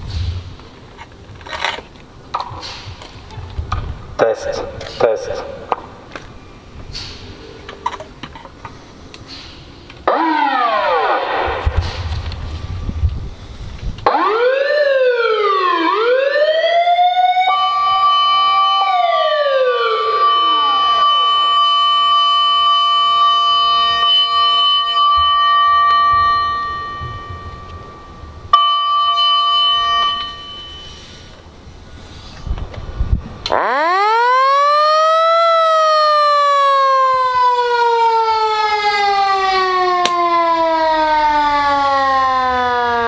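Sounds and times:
wailing siren: 10.0s - 13.1s, 14.0s - 31.0s, 33.4s - 43.0s
steady siren tone: 10.0s - 31.3s, 33.5s - 43.0s.

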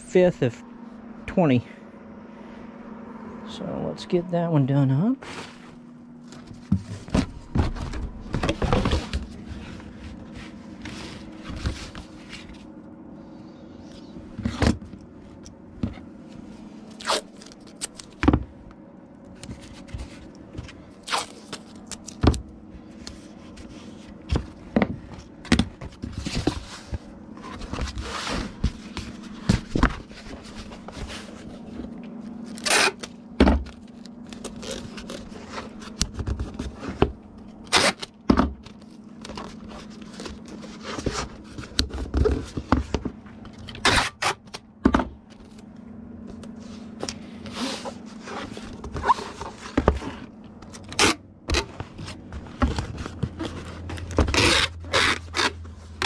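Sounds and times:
steady low hum: 0.0s - 56.0s
packing materials knocking and scraping: 6.3s - 12.6s, 19.4s - 45.0s, 47.0s - 56.0s.

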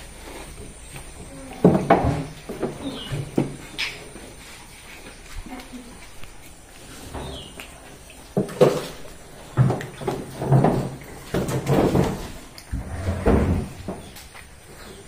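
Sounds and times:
animals knocking and scraping: 0.0s - 15.0s.

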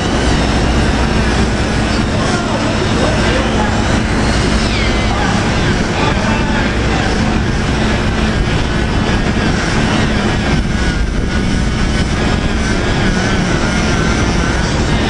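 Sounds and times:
faint wavering whine: 0.0s - 15.0s
industrial machinery drone: 0.0s - 15.0s.

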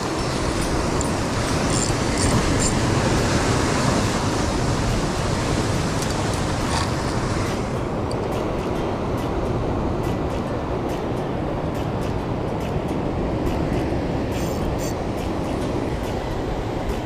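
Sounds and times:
surf breaking over rocks: 0.0s - 7.9s.

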